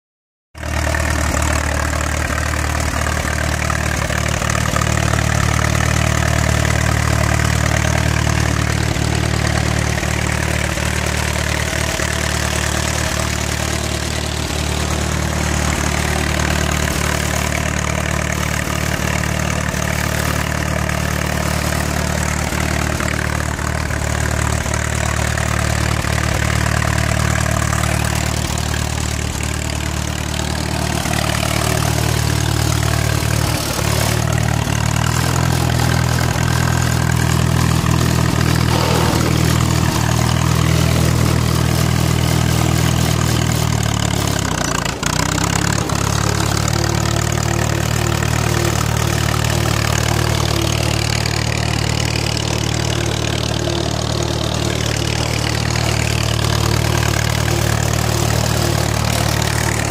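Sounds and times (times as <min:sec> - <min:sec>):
tractor engine idling: 0:00.6 - 0:59.9.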